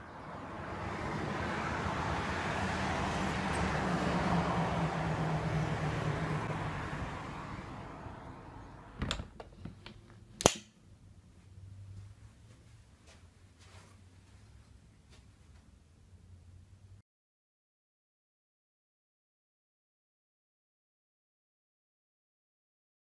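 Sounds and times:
vehicle passing: 0.0 - 9.0, 11.1 - 12.9.

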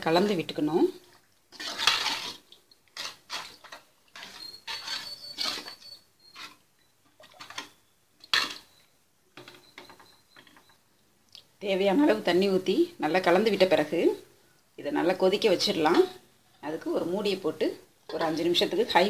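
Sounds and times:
ladle scraping metal pan: 1.5 - 8.8, 18.1 - 19.0.

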